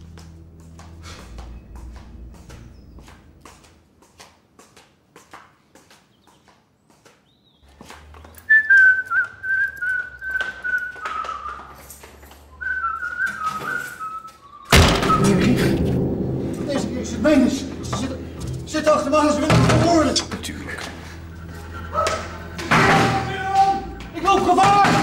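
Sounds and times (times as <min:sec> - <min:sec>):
soft footsteps: 0:00.0 - 0:13.8
person whistling a tune: 0:08.5 - 0:11.8, 0:12.5 - 0:15.2
loud thump: 0:14.7 - 0:21.4.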